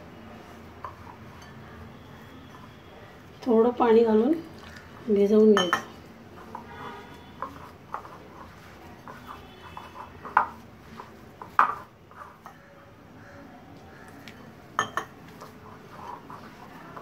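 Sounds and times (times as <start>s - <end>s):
dough mixed by hand: 0.0s - 17.0s.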